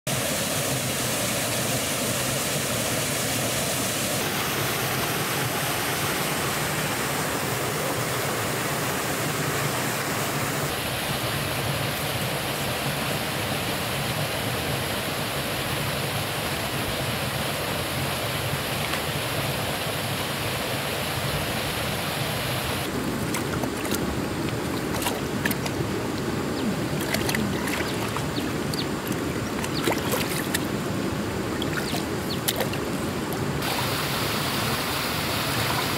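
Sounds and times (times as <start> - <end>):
waterfall and river rushing: 0.1 - 35.9
hands splashing in shallow water: 22.9 - 30.8, 31.6 - 33.4.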